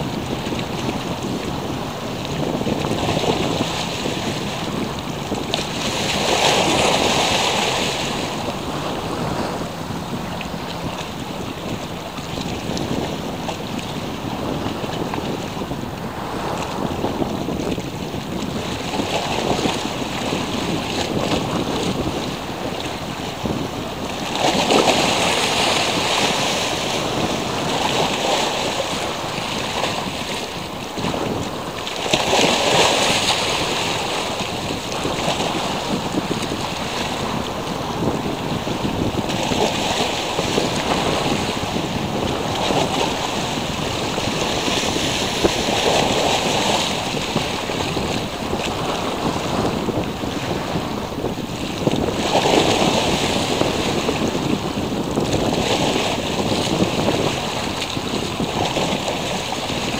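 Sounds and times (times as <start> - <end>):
small waves washing onto beach: 0.0 - 59.9
wind rumbling on microphone: 0.0 - 59.9.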